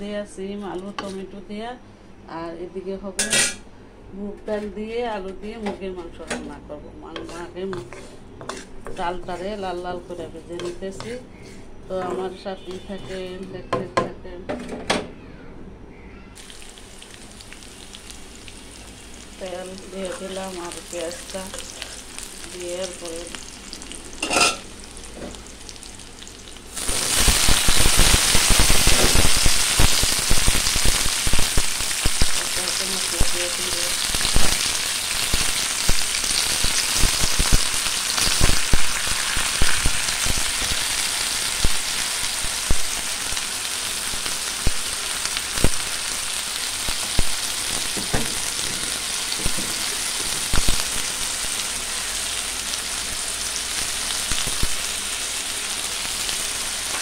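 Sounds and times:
vegetables sizzling in hot oil: 0:16.4 - 0:57.0.

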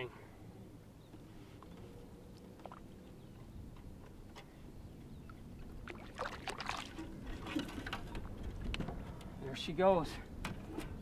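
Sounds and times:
water splashing: 0:05.8 - 0:08.0.

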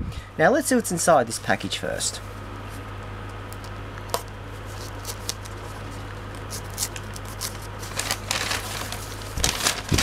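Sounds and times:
electric fan humming: 0:00.0 - 0:10.0
wrapping paper crinkling and tearing: 0:04.6 - 0:10.0.

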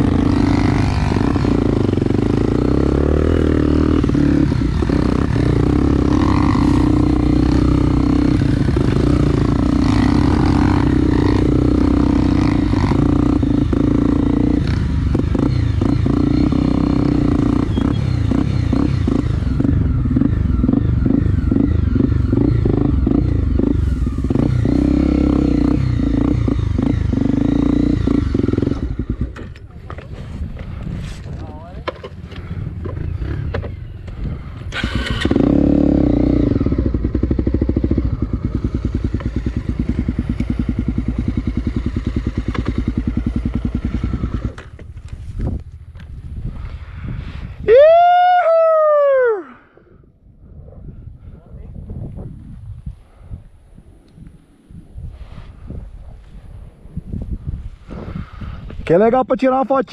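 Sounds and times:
motorcycle engine running: 0:00.0 - 0:47.3
motorcycle knocks and rattles: 0:28.4 - 0:34.2, 0:38.7 - 0:46.2.

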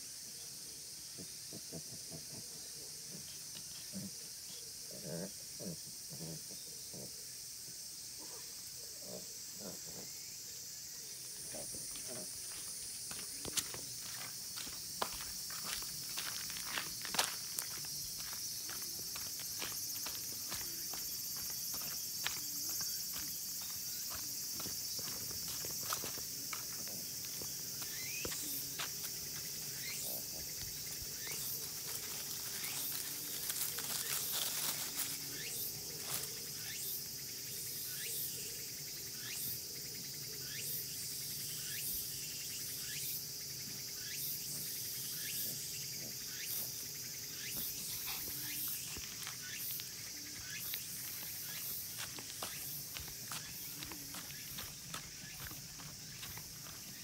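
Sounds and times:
insect chorus: 0:00.0 - 0:57.0
footsteps on road: 0:11.9 - 0:29.6, 0:48.7 - 0:57.0.

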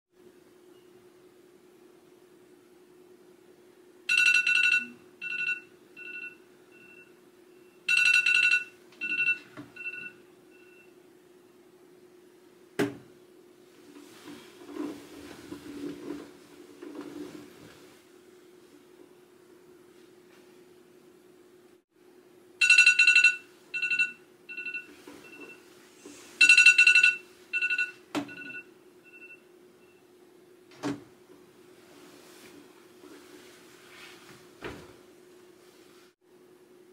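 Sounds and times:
phone alarm chime: 0:04.1 - 0:07.1, 0:07.7 - 0:10.9, 0:22.6 - 0:25.6, 0:26.4 - 0:30.0.

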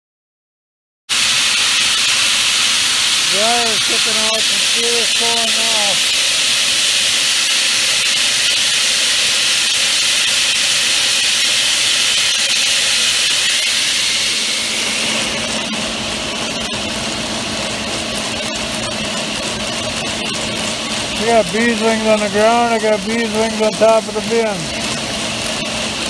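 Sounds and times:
corn pouring into bin: 0:01.1 - 0:15.5, 0:18.2 - 0:26.0
farm machinery humming: 0:01.2 - 0:09.4, 0:13.5 - 0:26.0.

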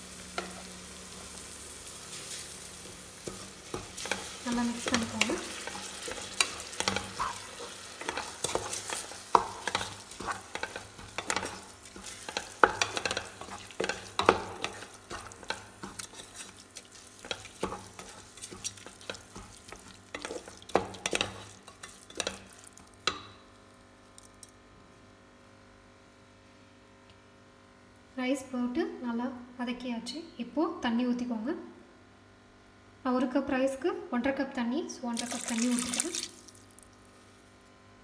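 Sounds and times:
light oil sizzle: 0:00.0 - 0:24.6, 0:35.1 - 0:37.6
wooden spatula scraping pot: 0:03.2 - 0:22.6.

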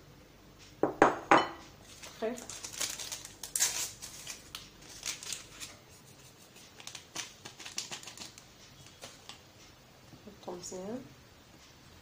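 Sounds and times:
paper sachet tearing and crinkling: 0:01.8 - 0:09.4.

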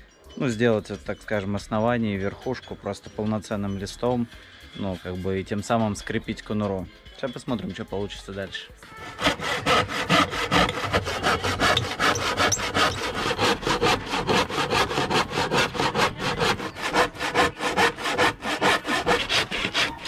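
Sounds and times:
handsaw cutting chipboard: 0:09.0 - 0:20.0.

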